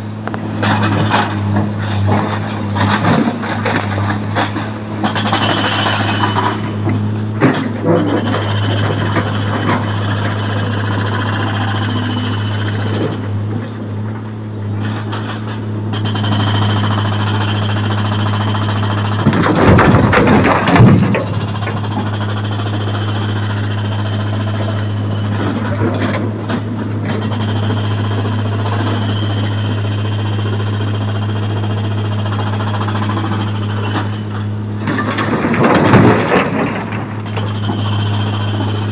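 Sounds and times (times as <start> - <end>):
diesel engine humming: 0.0 - 38.9
stone crashing into truck body: 19.3 - 21.4, 34.8 - 37.4.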